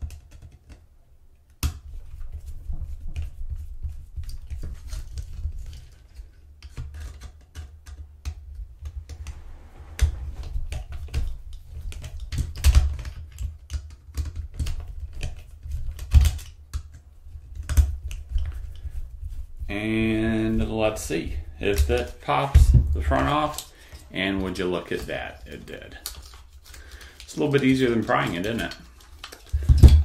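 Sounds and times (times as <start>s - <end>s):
plastic handling noise: 23.0s - 30.0s.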